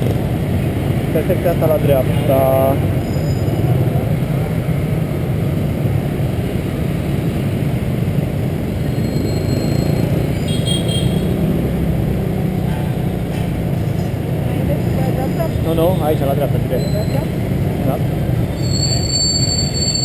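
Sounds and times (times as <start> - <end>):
street traffic: 0.0 - 20.0
high-pitched tone: 18.5 - 20.0.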